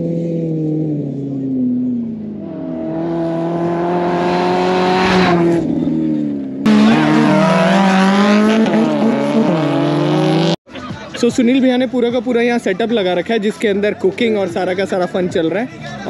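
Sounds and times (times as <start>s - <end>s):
engine revving at high revs: 2.4s - 5.8s, 6.6s - 10.6s.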